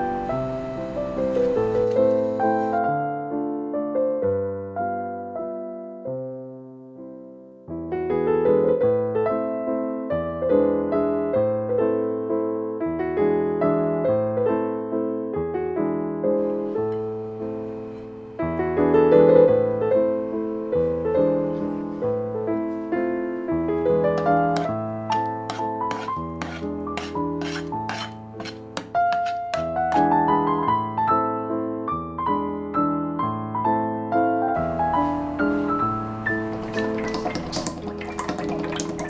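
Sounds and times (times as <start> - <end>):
gentle piano music: 0.0 - 39.0
spoon scraping a pot: 24.2 - 30.1.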